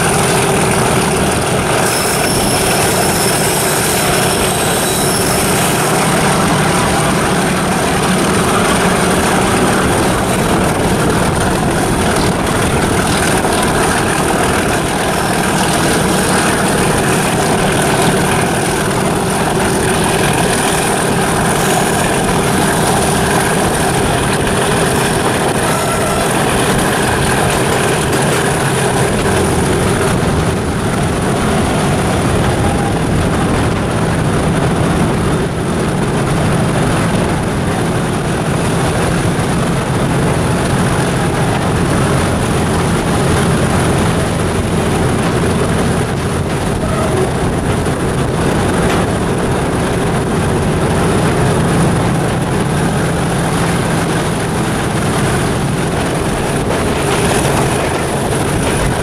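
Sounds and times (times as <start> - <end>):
diesel locomotive engine running: 0.0 - 59.0
wheel and rail noise: 0.0 - 59.0.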